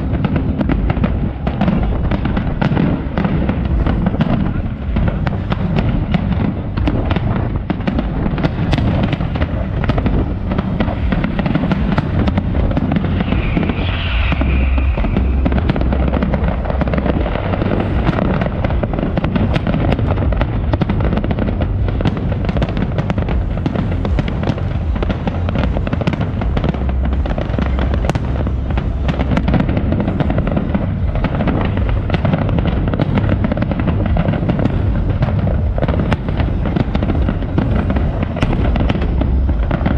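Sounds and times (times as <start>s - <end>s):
firework shell bursts and crackling: 0.0s - 39.9s
low rumble: 0.0s - 39.9s.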